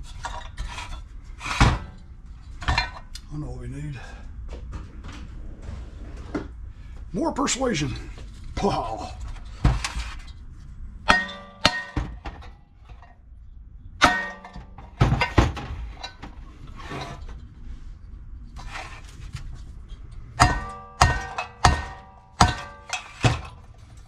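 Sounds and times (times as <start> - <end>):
hammer clanging on metal: 11.1 - 12.5, 14.0 - 16.2, 20.4 - 23.6.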